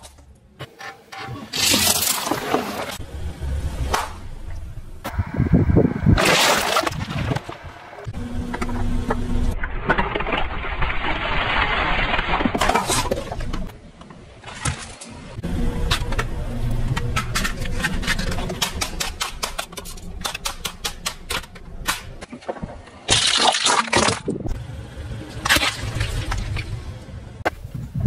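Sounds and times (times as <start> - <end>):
tyre crushing plastic toys: 9.6 - 13.8, 17.2 - 24.4
low engine rumble: 24.4 - 28.0.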